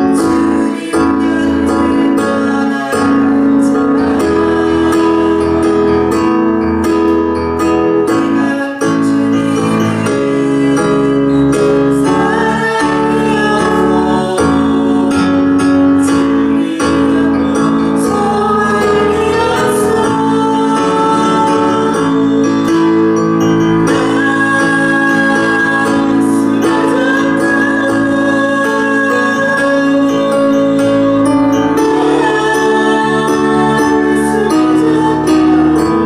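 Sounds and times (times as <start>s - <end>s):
woman singing: 8.2s - 23.1s, 23.8s - 36.0s.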